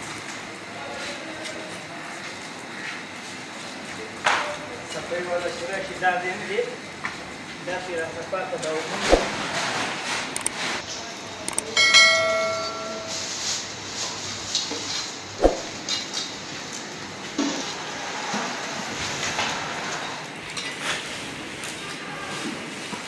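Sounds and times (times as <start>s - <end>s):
metal cooking pot ringing: 11.6s - 13.4s.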